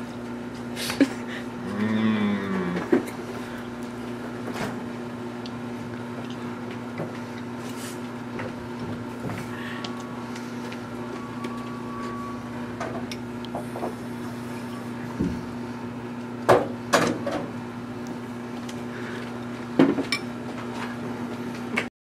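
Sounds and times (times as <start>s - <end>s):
low hum: 8.5s - 16.0s.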